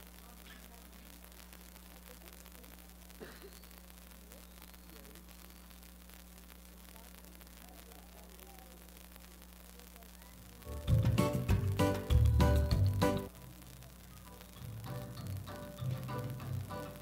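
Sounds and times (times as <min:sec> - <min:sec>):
low electrical hum: 0:00.0 - 0:17.0
faint distant voices: 0:06.7 - 0:10.9.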